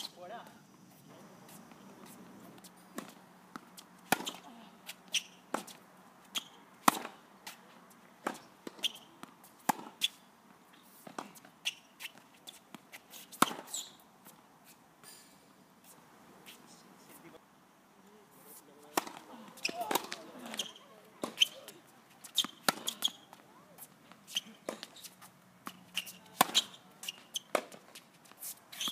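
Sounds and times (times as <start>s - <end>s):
tennis ball struck by rackets: 2.9s - 4.5s, 5.1s - 7.2s, 8.2s - 10.2s, 13.4s - 13.8s, 18.9s - 23.4s, 25.6s - 27.9s.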